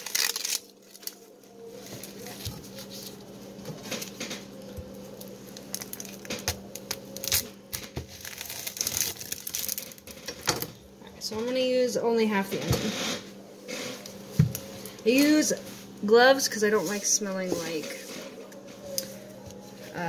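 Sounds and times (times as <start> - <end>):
onion skin crackling and tearing: 0.0 - 10.6.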